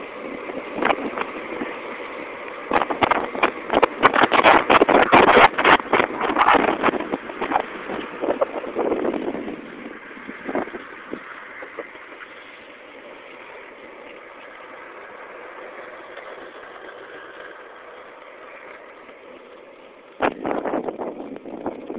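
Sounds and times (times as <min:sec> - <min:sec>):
wind rush: 0:00.0 - 0:12.7, 0:20.2 - 0:21.9
wheels rolling on asphalt: 0:00.0 - 0:21.9.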